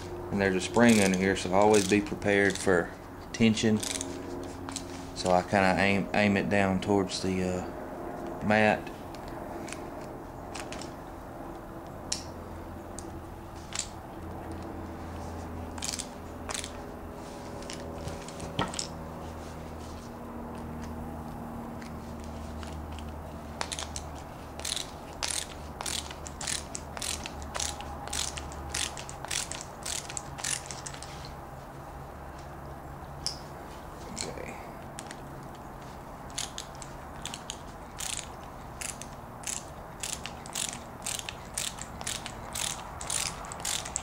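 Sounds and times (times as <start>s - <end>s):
ratcheting screwdriver clicking: 0.9s - 2.7s, 3.8s - 4.1s, 15.8s - 16.8s, 23.6s - 31.1s, 36.3s - 44.0s.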